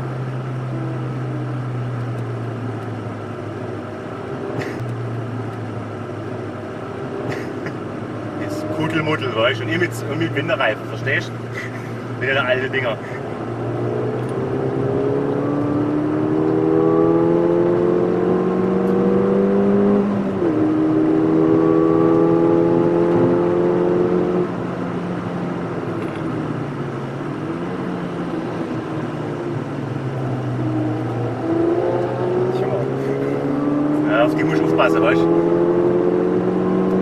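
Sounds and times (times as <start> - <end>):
car engine accelerating: 0.0 - 37.0.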